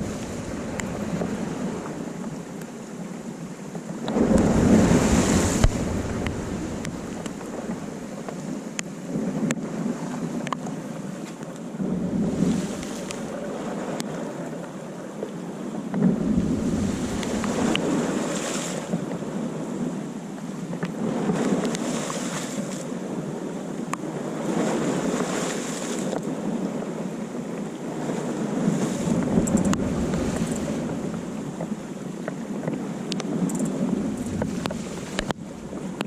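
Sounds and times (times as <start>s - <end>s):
wind buffeting microphone: 0.0s - 2.6s, 3.9s - 10.4s, 11.8s - 14.2s, 15.9s - 20.1s, 27.8s - 36.0s
waves breaking on rocky shore: 0.0s - 36.0s.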